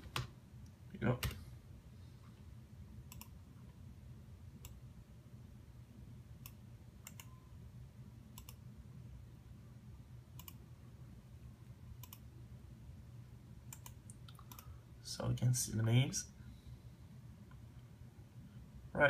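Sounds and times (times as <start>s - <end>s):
faint low hum: 0.0s - 19.0s
computer mouse buttons clicking: 3.1s - 3.4s, 6.4s - 7.4s, 8.4s - 8.6s, 10.4s - 10.6s, 12.0s - 12.2s, 13.7s - 14.7s.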